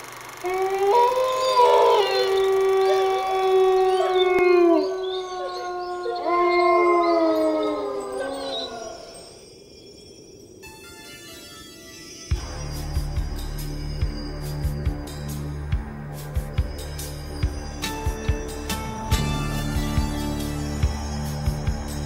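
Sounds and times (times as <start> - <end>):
dogs howling: 0.4 - 9.3.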